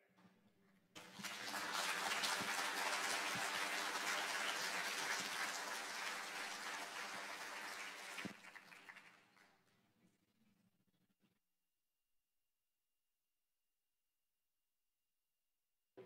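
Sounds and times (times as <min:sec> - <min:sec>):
crowd applauding: 0:01.0 - 0:09.6.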